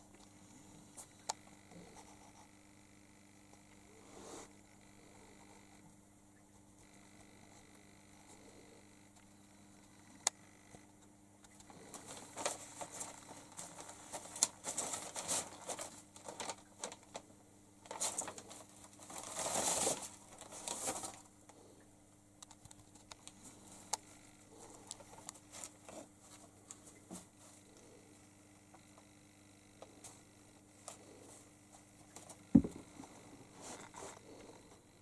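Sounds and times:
paper and plastic crinkling: 11.7 - 17.2, 17.8 - 21.3.

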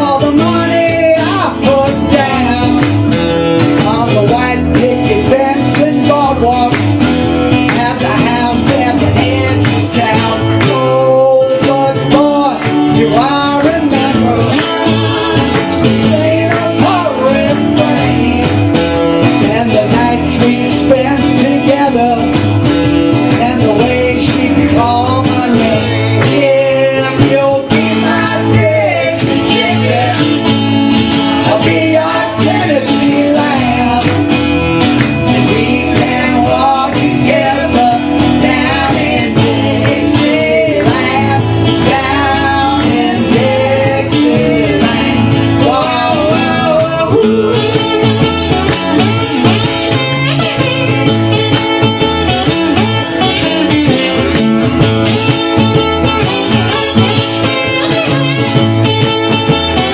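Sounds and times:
person singing: 0.0 - 22.4, 23.1 - 59.9
acoustic guitars strumming: 0.0 - 59.9.

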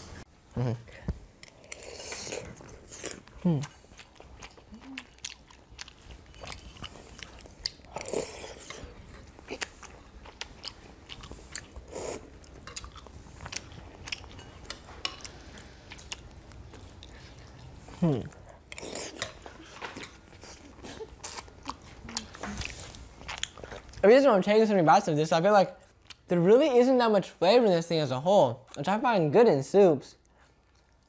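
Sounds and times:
chewing and mouth sounds: 1.4 - 24.0.

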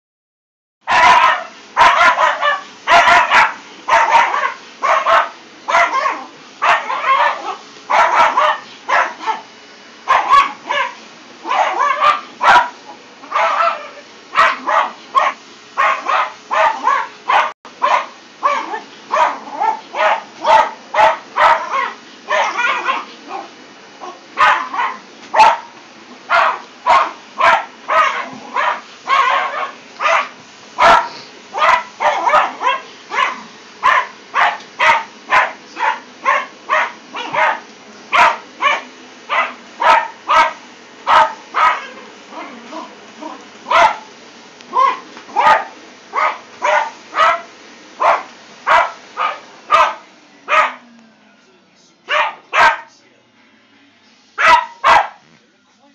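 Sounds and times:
puppy barking: 0.9 - 44.1, 44.7 - 50.9, 52.1 - 52.9, 54.4 - 55.3.

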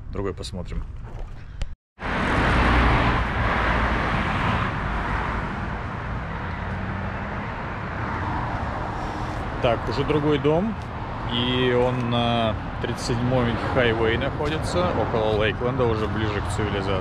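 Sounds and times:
vehicle passing close by: 2.0 - 17.0.

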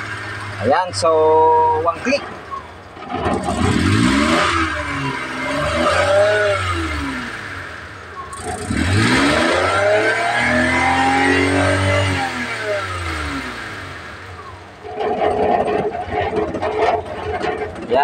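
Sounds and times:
engine revving: 0.0 - 18.0
engine starter cranking: 1.8 - 9.9.

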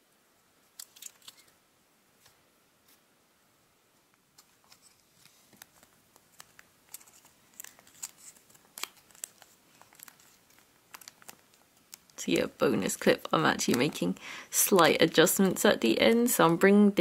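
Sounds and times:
origami paper crinkling: 0.7 - 1.6, 4.4 - 15.0.

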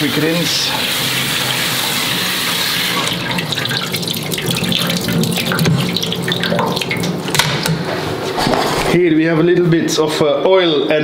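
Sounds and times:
tap water running into strainer: 0.0 - 7.8.

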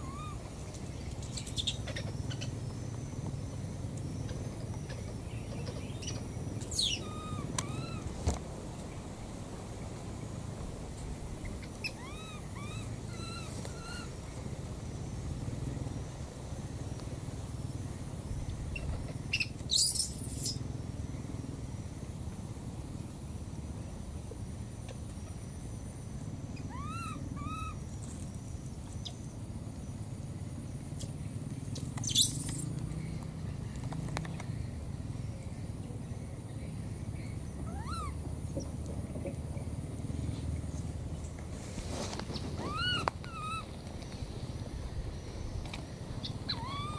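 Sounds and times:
baby monkey crying: 0.0 - 0.5, 6.7 - 8.1, 11.6 - 14.1, 26.6 - 27.8, 37.6 - 38.2, 42.6 - 43.7, 46.2 - 46.9
steady low rumble: 0.0 - 32.0, 32.6 - 46.9
animal giving short high calls: 26.7 - 27.8, 37.7 - 38.2, 42.6 - 43.7, 46.5 - 46.9
sharp rustle: 41.4 - 43.2.

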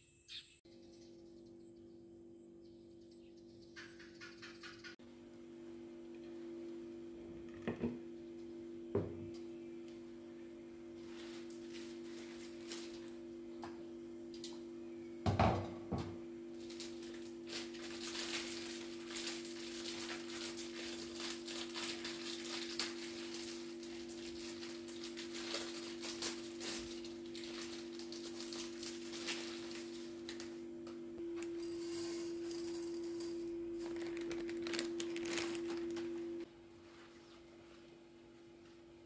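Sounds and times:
water crackling in saucepan: 16.6 - 30.5.

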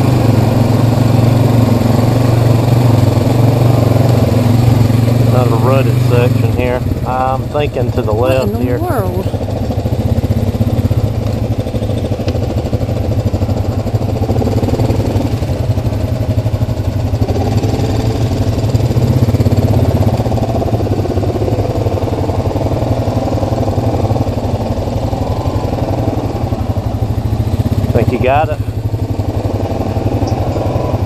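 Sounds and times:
quad bike engine at low revs: 0.0 - 31.0.

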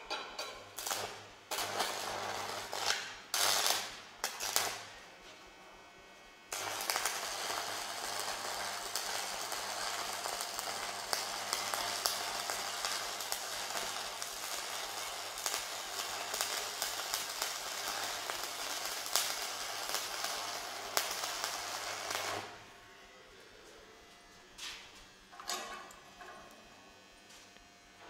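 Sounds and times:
welding arc crackling: 0.1 - 5.0, 6.5 - 23.0.

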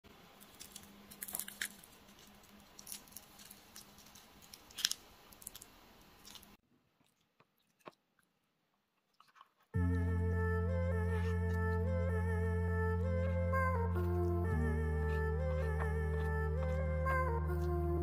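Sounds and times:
fried chicken crunching: 0.4 - 8.2.

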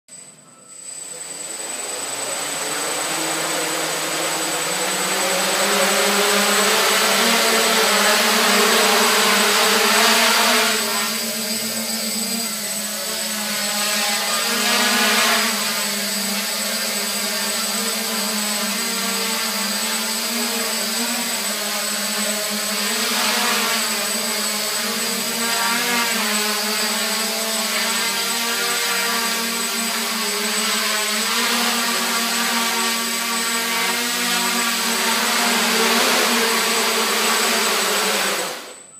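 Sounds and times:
quadcopter motors whirring: 0.1 - 38.9.

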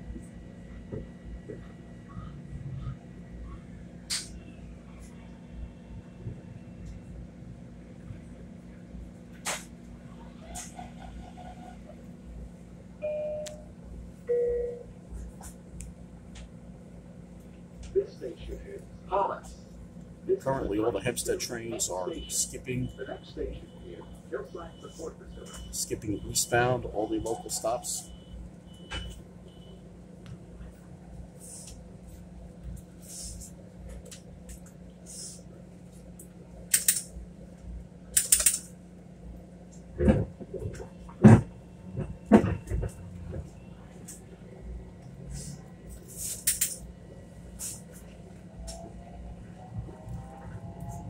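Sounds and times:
train car equipment hum: 0.0 - 51.0
sharp click: 36.7 - 37.1, 38.2 - 38.6
low rumble: 46.8 - 51.0.

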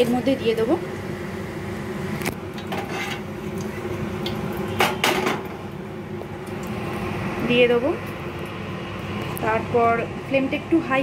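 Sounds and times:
leaves sizzling in hot oil: 0.0 - 11.0
steady hum: 0.0 - 11.0
kitchen utensils clattering: 2.6 - 3.2, 4.8 - 5.5.

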